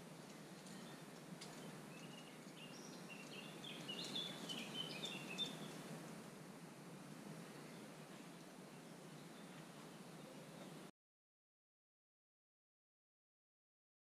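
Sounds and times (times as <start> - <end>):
small bird singing: 0.0 - 5.9, 7.5 - 10.9
faint background hiss: 0.0 - 10.9.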